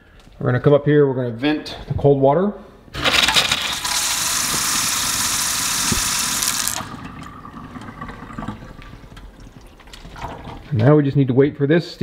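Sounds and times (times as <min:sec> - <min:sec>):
faucet running into steel sink: 0:03.7 - 0:10.6.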